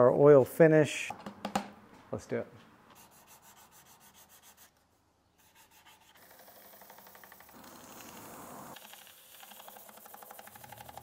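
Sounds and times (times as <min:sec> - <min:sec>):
sandpaper rubbing wood: 0:03.0 - 0:04.8, 0:05.4 - 0:06.8, 0:09.3 - 0:11.0.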